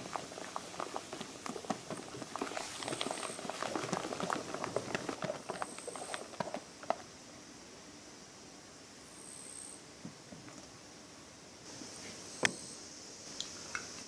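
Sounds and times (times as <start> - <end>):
whisk beating cream in metal bowl: 0.0 - 6.6.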